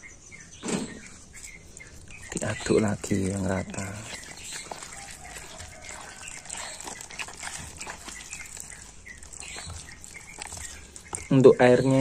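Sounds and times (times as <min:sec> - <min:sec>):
batter sloshing while stirred: 0:01.1 - 0:12.0.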